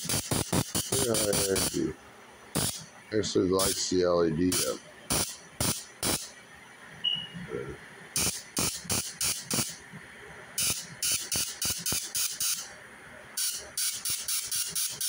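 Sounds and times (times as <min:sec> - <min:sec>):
high-voltage sparks snapping: 0:00.0 - 0:01.8, 0:02.6 - 0:02.8, 0:04.5 - 0:06.3, 0:08.2 - 0:09.8, 0:10.6 - 0:12.7, 0:13.4 - 0:15.0.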